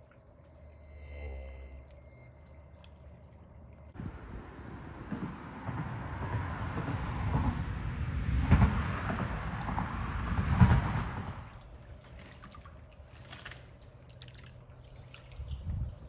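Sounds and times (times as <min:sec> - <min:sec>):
water trickles and drips: 0:00.0 - 0:04.2, 0:11.3 - 0:16.0
low rumble: 0:00.7 - 0:12.0
water lapping at bank: 0:09.2 - 0:16.0.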